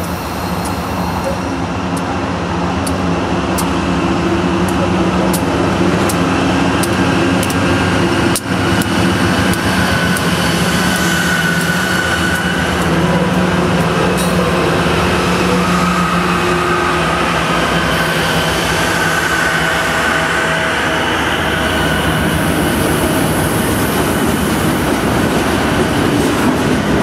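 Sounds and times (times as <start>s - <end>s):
locomotive engine drone: 0.0s - 27.0s
train wheels clicking over rail joints: 2.8s - 15.1s.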